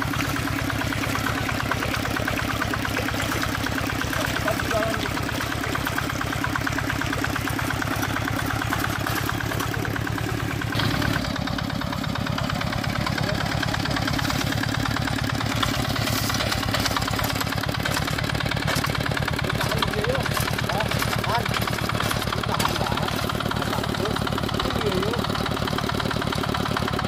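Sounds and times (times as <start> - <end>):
diesel engine chugging: 0.0 - 27.0.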